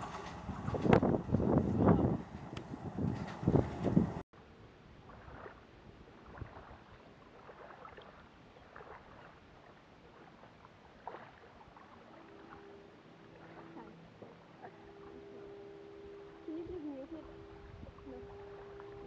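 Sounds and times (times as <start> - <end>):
faint steady hum: 11.7 - 19.0.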